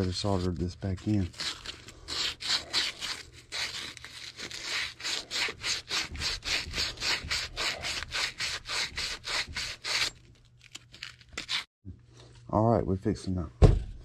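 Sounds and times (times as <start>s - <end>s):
abrasive cloth scrubbing copper pipe: 0.0s - 10.2s.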